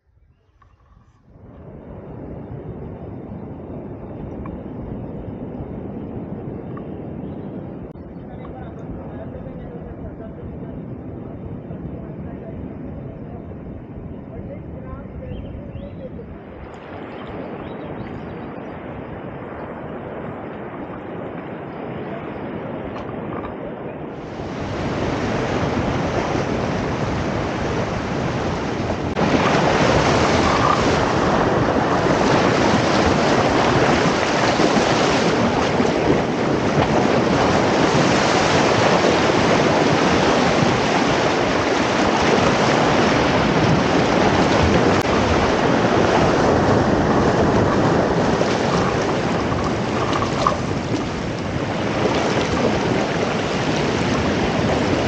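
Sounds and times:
surf breaking on rocks: 0:24.2 - 0:55.0.

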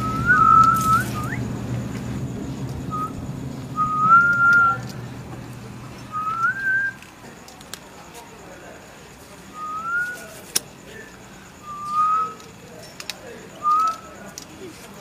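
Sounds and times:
person whistling: 0:00.0 - 0:01.5, 0:02.9 - 0:03.2, 0:03.8 - 0:04.8, 0:06.1 - 0:07.0, 0:09.5 - 0:10.2, 0:11.6 - 0:12.4, 0:13.6 - 0:14.0.

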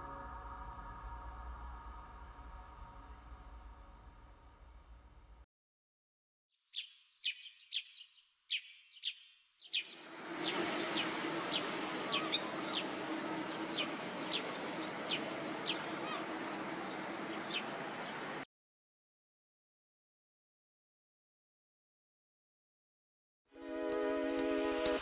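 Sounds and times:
steady outdoor hiss: 0:09.6 - 0:18.4, 0:23.6 - 0:25.0
plover sharp short calls: 0:11.3 - 0:17.7.

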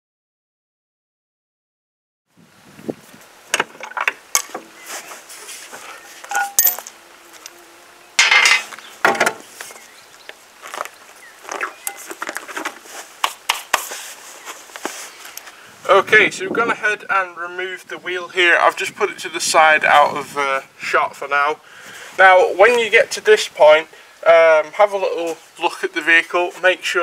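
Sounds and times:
metal clinks of wheel bolts: 0:06.3 - 0:06.9.

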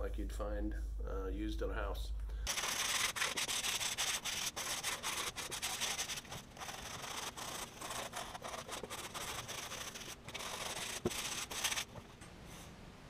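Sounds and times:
sandpaper rasping on wood: 0:02.5 - 0:12.0.

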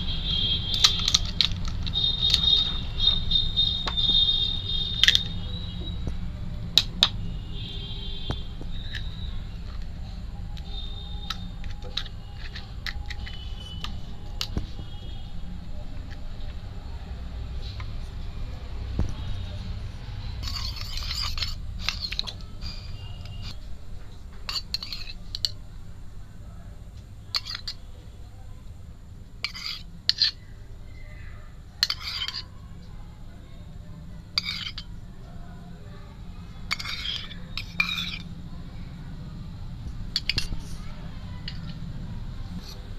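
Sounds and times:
metal spoon scraping a bowl: 0:00.1 - 0:06.1, 0:06.8 - 0:15.2, 0:19.0 - 0:23.7, 0:24.5 - 0:25.6, 0:27.3 - 0:27.9, 0:29.4 - 0:31.0, 0:31.8 - 0:32.6, 0:34.3 - 0:35.0, 0:36.6 - 0:38.4, 0:40.1 - 0:41.8, 0:42.5 - 0:42.9
crisp shells clicking and tapping: 0:10.6 - 0:14.7.

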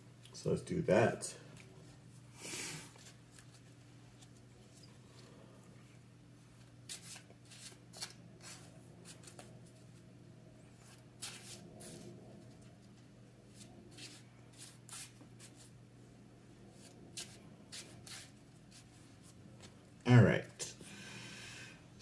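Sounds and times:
faint low hum: 0:00.0 - 0:22.0
cards being shuffled by hand: 0:06.6 - 0:10.1, 0:10.8 - 0:15.8, 0:16.7 - 0:19.8.

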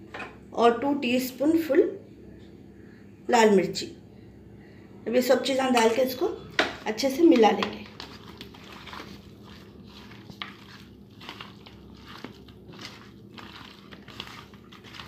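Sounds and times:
hands squishing raw meat: 0:07.3 - 0:15.0.

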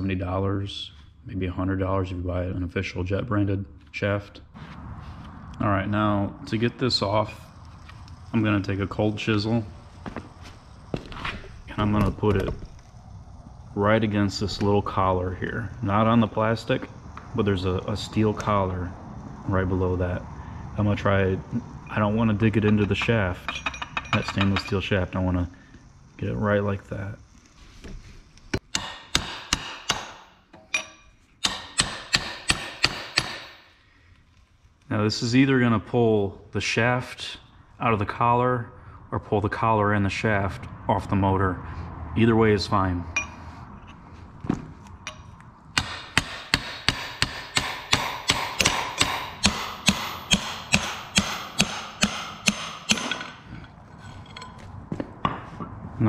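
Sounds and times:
hammer striking metal chisel: 0:22.6 - 0:24.8, 0:28.6 - 0:33.7, 0:45.1 - 0:54.6.

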